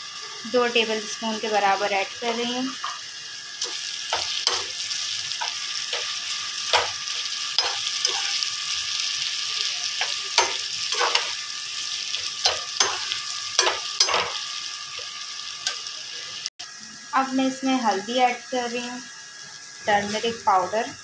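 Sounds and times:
food sizzling in hot oil: 0:00.0 - 0:21.0
steel spoon scraping a pan: 0:01.7 - 0:15.9.

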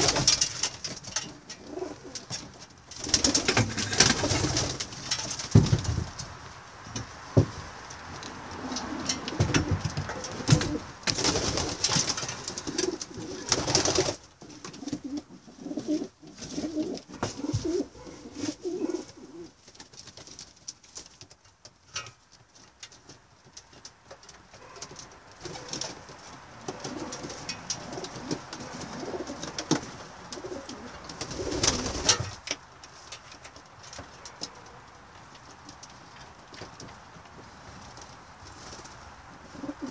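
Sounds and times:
pigeons cooing: 0:01.5 - 0:02.3, 0:08.4 - 0:11.7, 0:12.5 - 0:14.2, 0:14.8 - 0:19.6, 0:26.6 - 0:32.1, 0:39.4 - 0:39.9
rustling bursts: 0:09.6 - 0:14.9.

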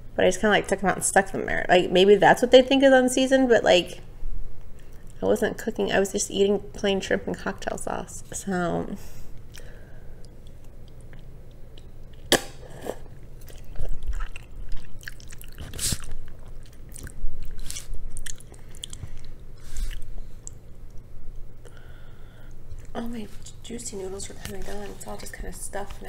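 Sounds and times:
person chewing noodles: 0:09.5 - 0:21.0.

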